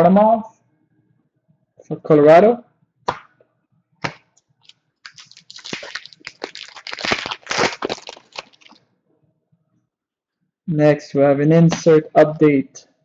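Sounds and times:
foil wrapper crinkling: 4.6 - 8.8.

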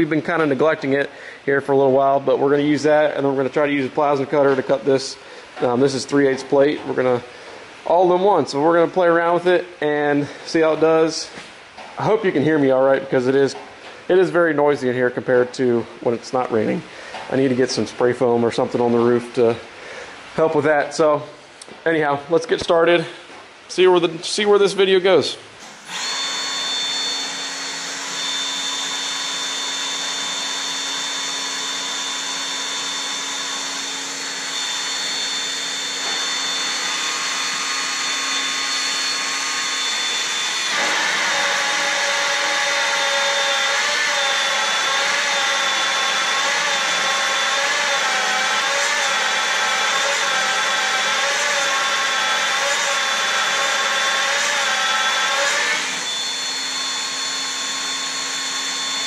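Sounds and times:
magnetic drill boring into steel: 25.6 - 59.0.

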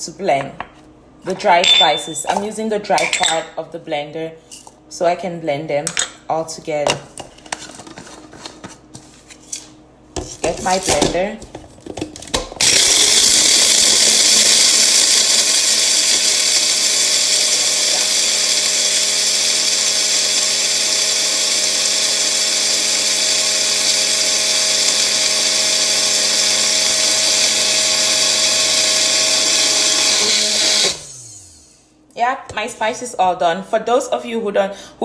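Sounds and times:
blender motor whining: 12.6 - 31.8.

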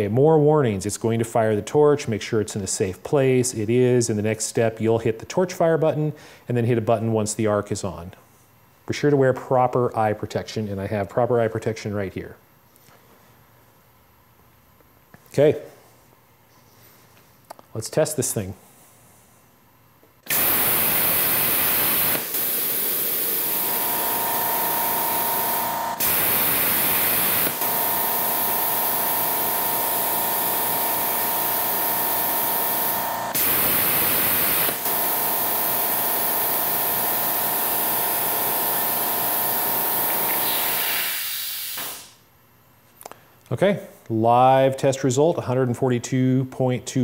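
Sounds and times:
plasma torch air hiss: 20.3 - 27.7, 30.5 - 34.9, 40.0 - 42.2.

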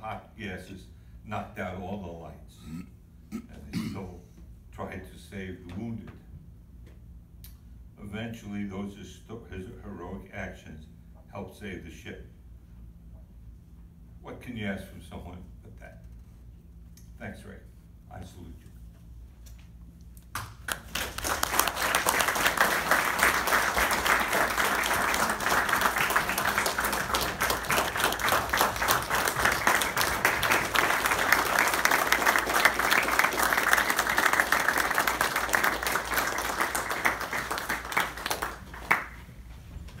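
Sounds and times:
audience clapping: 20.3 - 39.3.

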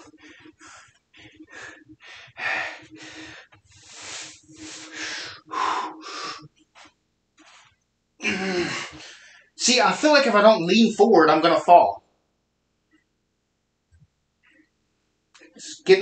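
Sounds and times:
man breathing heavily: 0.0 - 6.5.

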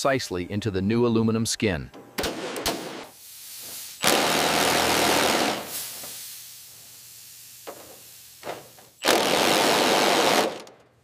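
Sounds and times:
cordless drill boring through metal: 9.0 - 10.6.

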